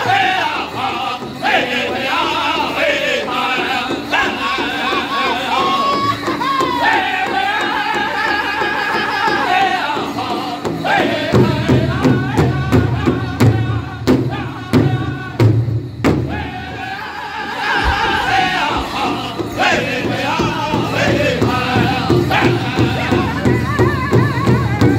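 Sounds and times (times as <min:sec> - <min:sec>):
group singing in high voices: 0:00.0 - 0:24.9
large hide drum beating: 0:10.8 - 0:24.9.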